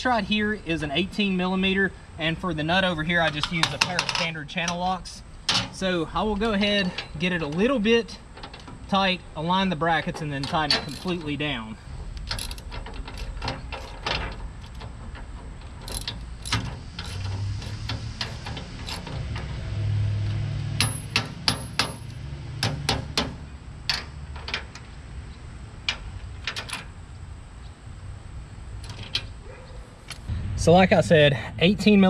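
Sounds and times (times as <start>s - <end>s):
wrench clinking on steel bolt: 9.9s - 19.6s, 20.2s - 24.9s.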